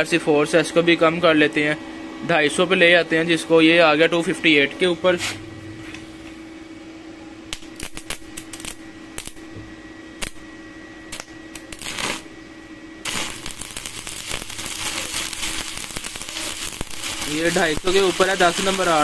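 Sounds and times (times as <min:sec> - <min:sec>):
welder hum: 0:02.4 - 0:19.0
welding arc crackling: 0:07.5 - 0:09.5, 0:10.2 - 0:12.4, 0:13.0 - 0:19.0
electrode scratching on steel: 0:11.7 - 0:12.3, 0:13.0 - 0:19.0.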